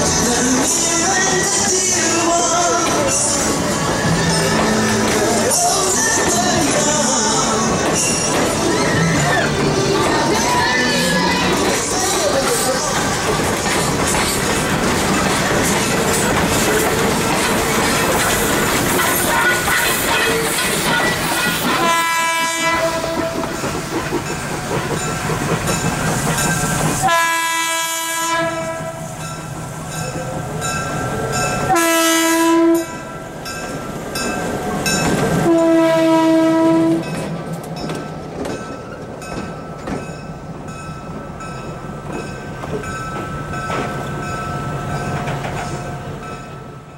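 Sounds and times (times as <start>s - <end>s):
steam locomotive working: 0.0s - 46.9s
locomotive air horn blasts: 19.0s - 23.5s, 27.0s - 29.1s, 31.7s - 33.0s, 35.4s - 37.0s.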